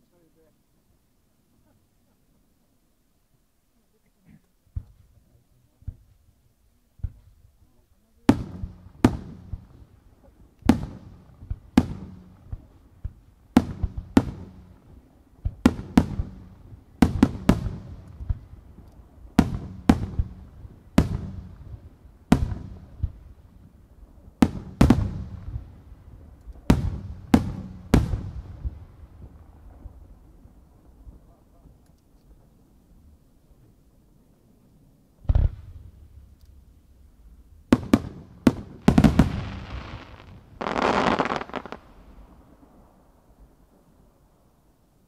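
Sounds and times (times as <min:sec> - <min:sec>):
fireworks booming with echoing rumble: 0:07.0 - 0:33.7, 0:35.2 - 0:44.2.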